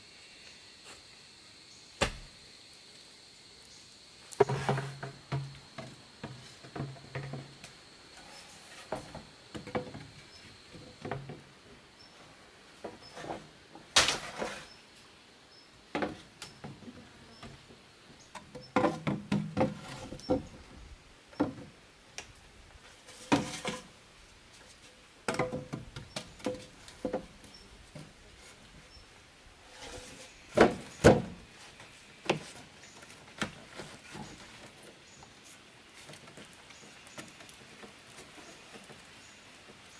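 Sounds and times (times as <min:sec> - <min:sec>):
bamboo poles knocking together: 0:18.3 - 0:20.5, 0:25.2 - 0:28.1.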